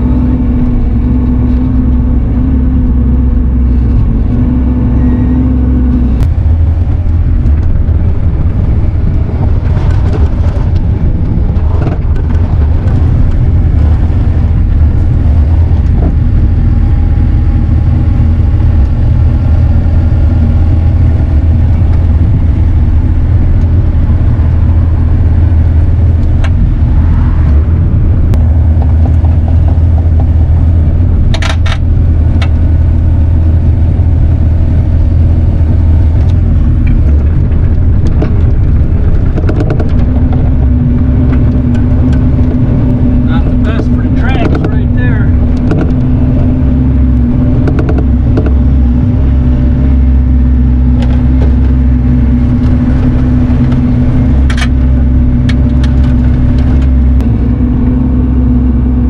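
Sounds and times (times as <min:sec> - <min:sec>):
diesel engine running: 0:00.0 - 0:59.0.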